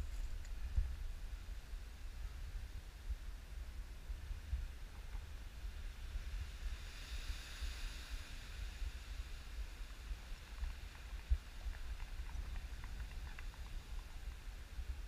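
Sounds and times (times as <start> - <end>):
wind rumbling on microphone: 0.0 - 15.0
light hiss: 3.3 - 15.0.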